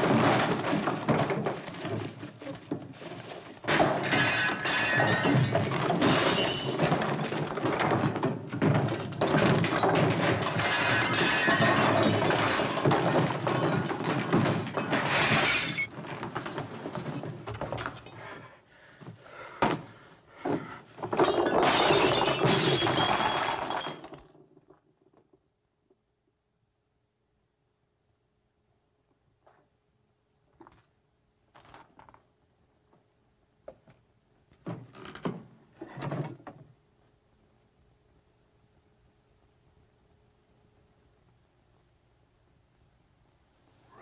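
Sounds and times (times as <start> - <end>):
furniture crashing and breaking: 0.0 - 18.1, 21.0 - 24.7
glass shattering: 3.7 - 15.9, 21.2 - 24.3.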